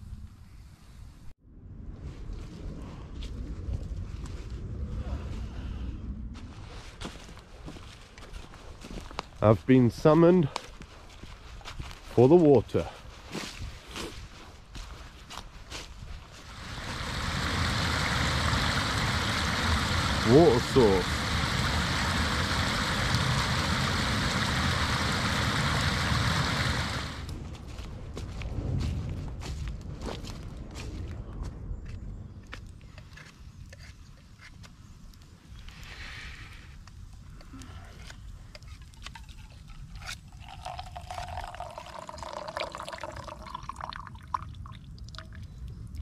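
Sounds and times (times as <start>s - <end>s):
stream of water running: 16.3s - 27.3s, 39.0s - 46.0s
liquid pouring into metal mug: 39.0s - 45.3s.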